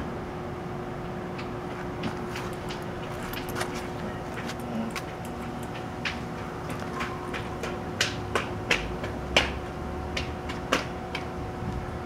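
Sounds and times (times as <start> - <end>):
sharp clicks and ticks: 4.3 - 11.3.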